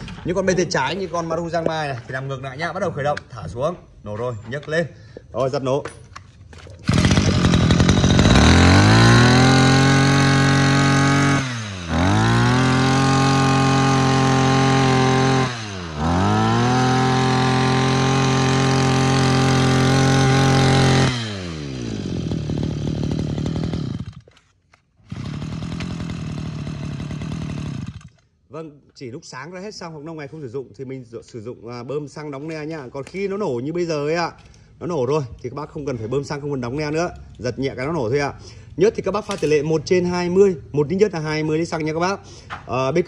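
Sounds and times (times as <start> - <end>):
engine pull-start: 6.8 - 10.6, 20.2 - 28.2
brush-cutter engine revving and idling: 6.8 - 28.2.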